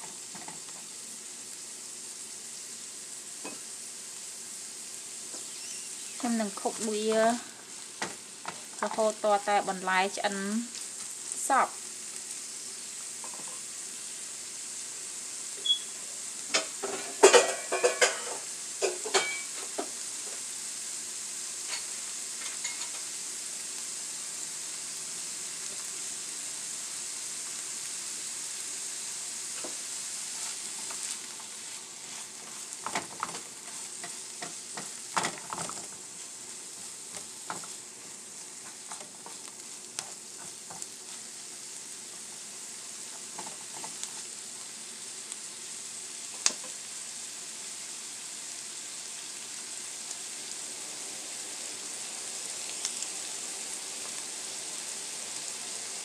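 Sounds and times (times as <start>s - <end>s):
vegetables sizzling in oil: 0.0s - 56.0s
spatula scraping a pan: 29.6s - 41.2s.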